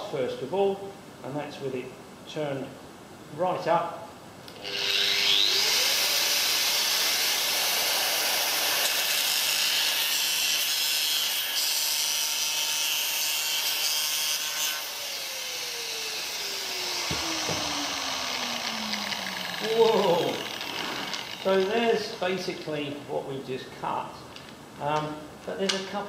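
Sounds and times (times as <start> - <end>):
angle grinder cutting glass: 4.6 - 22.2
low knocks: 17.0 - 19.6.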